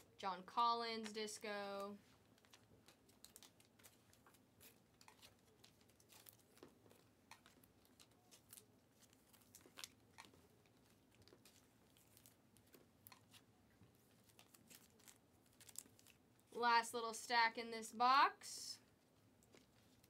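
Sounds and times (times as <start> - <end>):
foil packs crinkling: 2.1 - 16.6.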